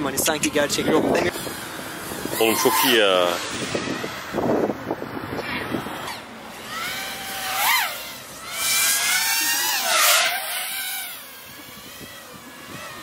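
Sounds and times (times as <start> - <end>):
quadcopter motors whining: 0.0 - 13.0
rush of air noise: 0.7 - 6.5.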